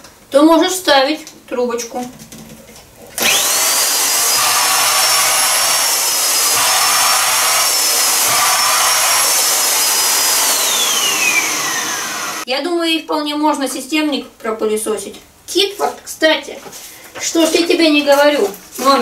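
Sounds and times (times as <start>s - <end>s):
vacuum cleaner motor whine: 3.2s - 12.5s.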